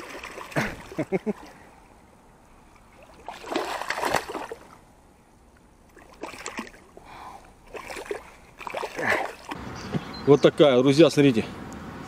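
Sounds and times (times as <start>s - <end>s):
fish splashing and thrashing in water: 0.0s - 1.6s, 2.7s - 4.8s, 5.9s - 9.6s.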